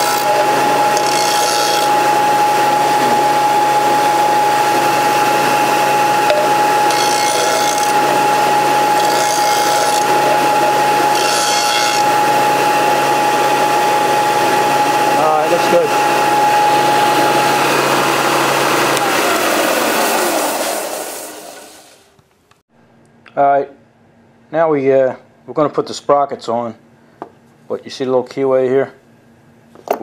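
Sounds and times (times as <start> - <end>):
disc sander whine: 0.0 - 22.0
steel grinding on sander: 0.0 - 22.0.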